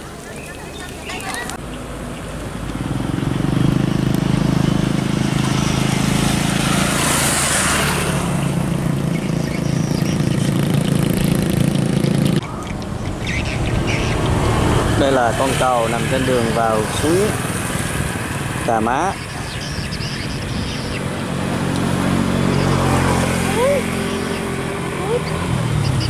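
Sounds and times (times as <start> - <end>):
motorbike engine running: 8.5 - 12.4.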